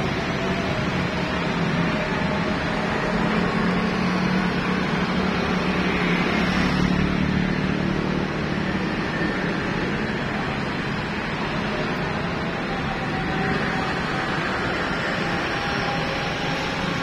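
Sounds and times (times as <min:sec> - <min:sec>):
cars passing: 0:00.0 - 0:17.0
motorcycles passing: 0:01.4 - 0:17.0.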